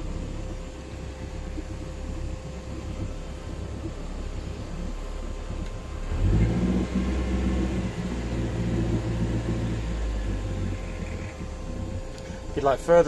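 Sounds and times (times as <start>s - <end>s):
boat engine revving: 0.0s - 13.0s.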